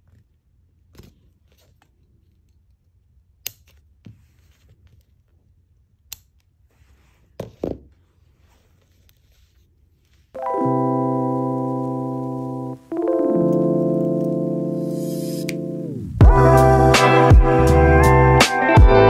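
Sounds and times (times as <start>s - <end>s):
faint handling rustle: 8.0s - 10.4s.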